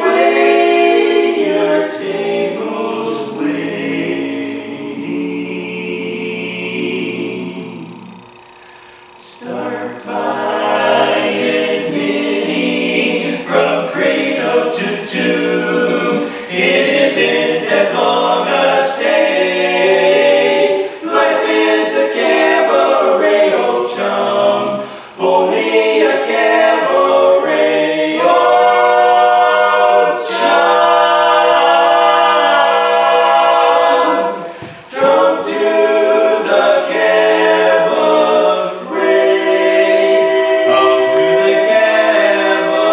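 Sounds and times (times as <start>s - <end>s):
male voices singing in harmony: 0.0s - 8.3s, 9.2s - 42.9s.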